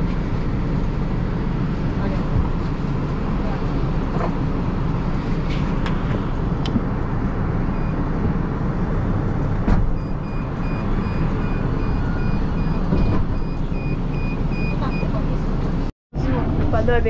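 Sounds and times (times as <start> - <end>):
engine and road rumble: 0.0 - 17.0
high electronic beep: 10.0 - 15.1.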